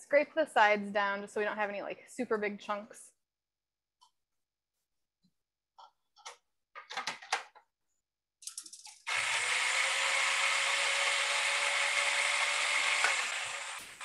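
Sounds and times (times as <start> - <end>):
clicks and knocks: 5.8 - 7.7
food processor motor whirring: 8.9 - 14.0.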